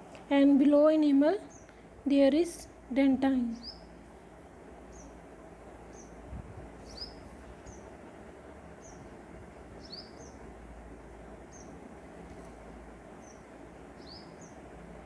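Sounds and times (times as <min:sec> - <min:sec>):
low background hum: 0:00.0 - 0:15.0
small bird chirping: 0:01.4 - 0:01.8, 0:03.5 - 0:04.0, 0:04.8 - 0:05.2, 0:05.8 - 0:06.2, 0:06.8 - 0:07.9, 0:08.8 - 0:09.1, 0:09.8 - 0:10.5, 0:11.5 - 0:11.8, 0:13.2 - 0:14.6.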